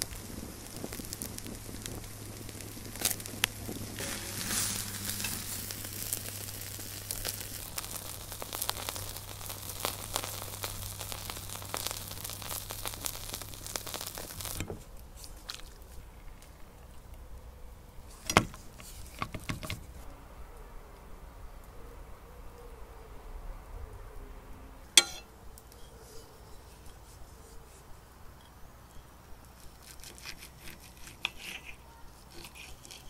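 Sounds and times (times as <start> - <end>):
wood fire crackling and popping: 0.0 - 20.1.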